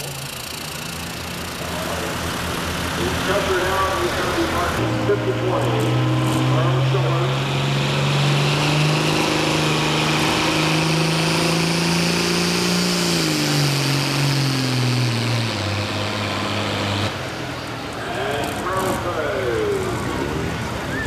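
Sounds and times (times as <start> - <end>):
tractor engine running under load: 0.0 - 8.4.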